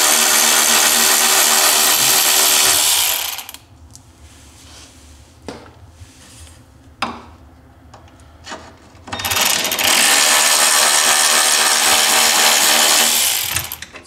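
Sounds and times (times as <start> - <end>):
cordless ratchet motor running: 0.0 - 3.6, 9.2 - 13.8.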